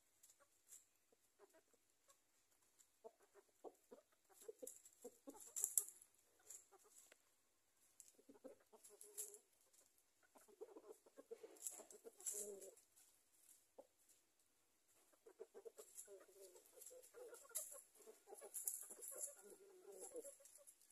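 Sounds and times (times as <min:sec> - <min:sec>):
chickens clucking softly: 0:00.0 - 0:20.9
pecking and scratching in leaves: 0:04.3 - 0:07.2, 0:07.8 - 0:14.2, 0:15.1 - 0:20.9.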